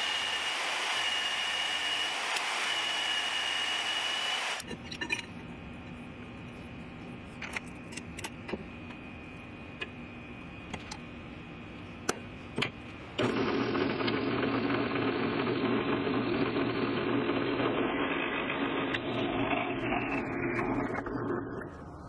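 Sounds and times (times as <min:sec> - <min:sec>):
drill press running: 0:00.0 - 0:04.7.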